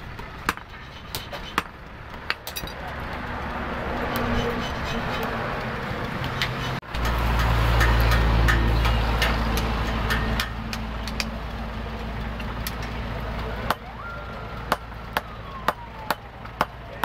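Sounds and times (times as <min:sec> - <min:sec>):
vehicle engine rumbling: 0:00.0 - 0:17.0
sledgehammers striking hot steel: 0:00.1 - 0:02.8, 0:06.2 - 0:11.4.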